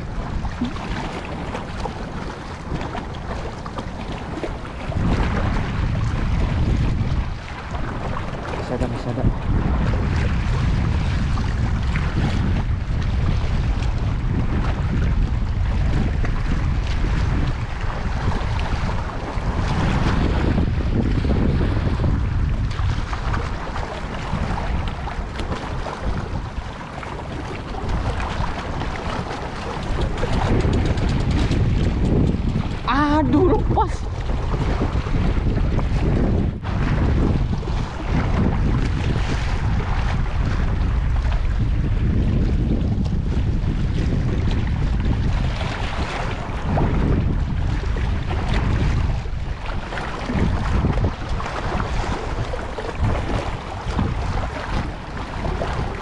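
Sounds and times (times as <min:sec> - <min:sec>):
waves lapping against rocks: 0:00.0 - 0:56.0
wind buffeting microphone: 0:00.0 - 0:56.0.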